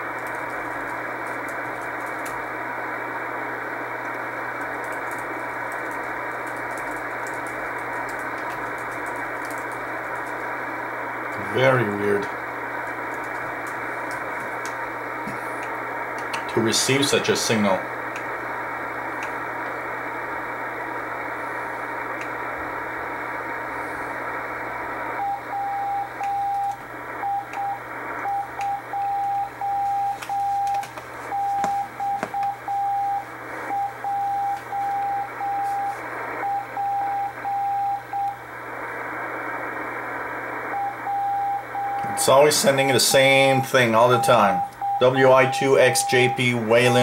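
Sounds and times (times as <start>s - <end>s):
radio static and hiss: 0.0s - 47.0s
morse code tone: 25.2s - 38.4s, 40.8s - 42.6s, 43.2s - 47.0s.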